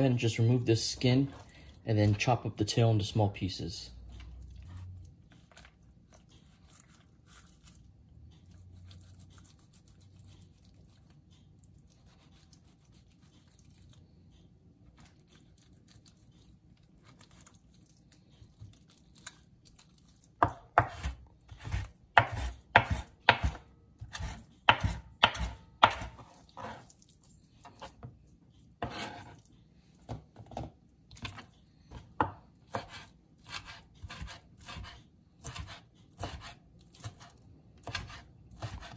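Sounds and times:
knife chopping on plastic board: 0:20.4 - 0:26.8, 0:28.8 - 0:29.4, 0:30.1 - 0:38.9.

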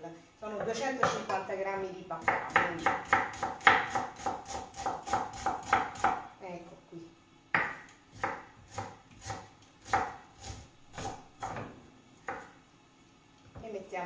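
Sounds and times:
knife chopping on wooden board: 0:02.2 - 0:06.2, 0:07.5 - 0:12.5.

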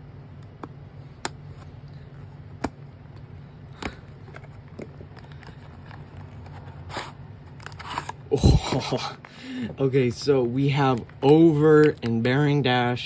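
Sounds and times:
steady low hum: 0:00.0 - 0:13.0
packaging clicks and taps: 0:02.6 - 0:06.7, 0:10.2 - 0:12.5.

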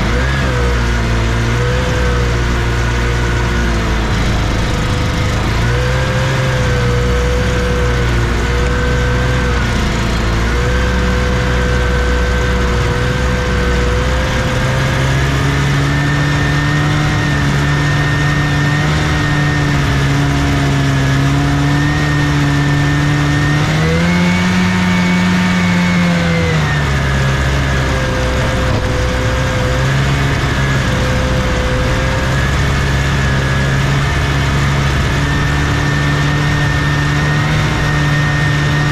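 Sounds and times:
snowmobile engine running: 0:00.0 - 0:38.9.

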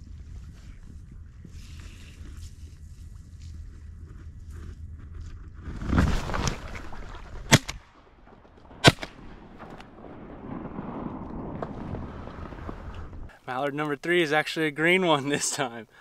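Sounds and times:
wind rumble on microphone: 0:00.0 - 0:07.5, 0:08.6 - 0:13.3
rustling noise: 0:00.0 - 0:07.6, 0:10.8 - 0:13.3
shotgun shots: 0:08.8 - 0:09.9.

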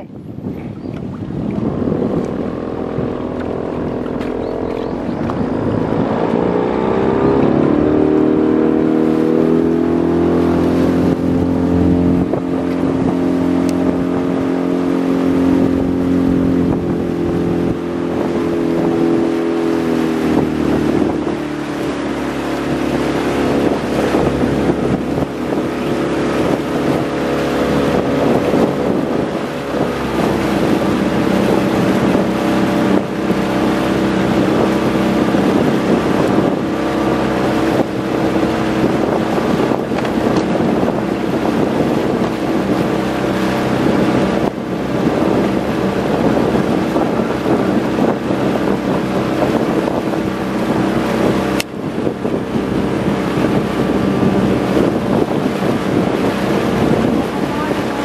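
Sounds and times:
boat motor running: 0:00.0 - 0:58.0.

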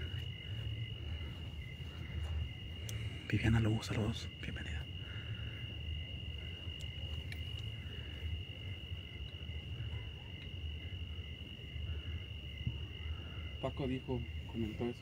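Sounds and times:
crickets trilling: 0:00.0 - 0:15.0
faint clicks: 0:02.8 - 0:03.1, 0:06.8 - 0:07.7.

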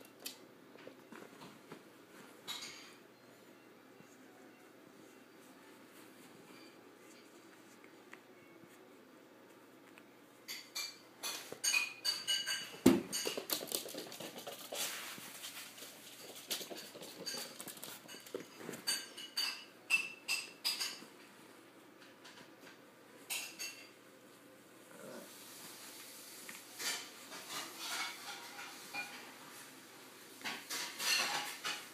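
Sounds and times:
puppy paws pattering on wood floor: 0:11.3 - 0:19.1.

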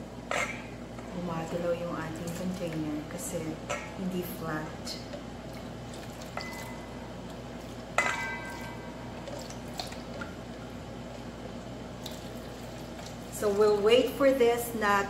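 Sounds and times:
liquid pouring and dripping: 0:05.4 - 0:10.7, 0:12.0 - 0:13.4
glass clinking against metal bowl: 0:06.4 - 0:06.9, 0:08.0 - 0:09.0.

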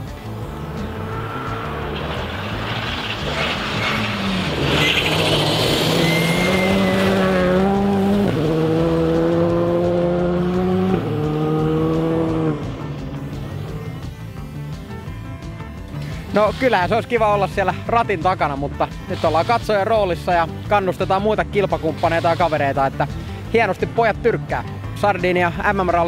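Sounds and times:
gravel spraying: 0:00.0 - 0:08.4, 0:15.9 - 0:17.8, 0:19.1 - 0:20.8, 0:21.5 - 0:23.8
rally car engine revving: 0:00.0 - 0:26.0.

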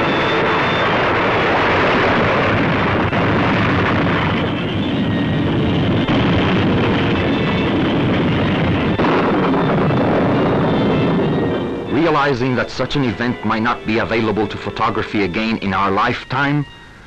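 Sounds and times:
volcano erupting roar: 0:00.0 - 0:12.3.

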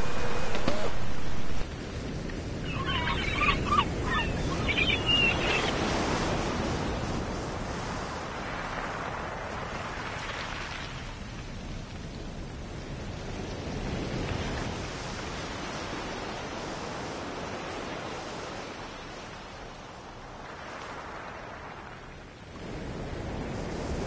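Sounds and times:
surf washing on a beach: 0:00.0 - 0:24.0
short bird calls: 0:02.7 - 0:05.8.

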